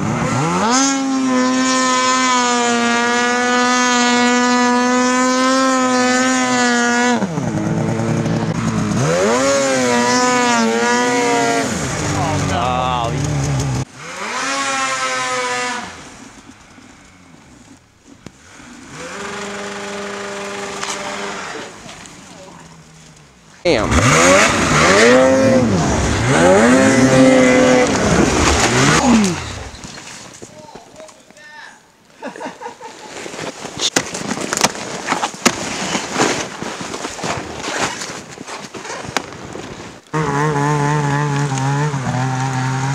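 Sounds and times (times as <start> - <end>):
snowmobile engine revving: 0.0 - 30.3, 40.1 - 42.9
track churning snow: 0.0 - 30.5
rough rustling noise: 24.5 - 31.4, 32.6 - 40.0.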